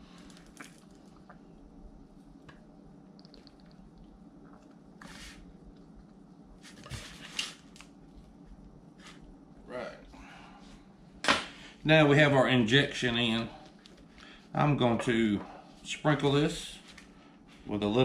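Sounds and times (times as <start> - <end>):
wet squishing: 0.0 - 1.6, 3.0 - 6.2
low steady hum: 0.0 - 18.0.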